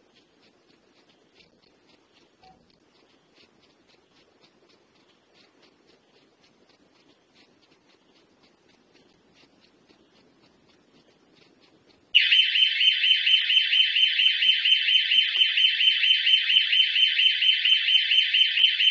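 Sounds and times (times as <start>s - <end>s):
faint ticks: 0.0s - 12.2s
pulsing electronic alarm siren: 12.2s - 18.9s.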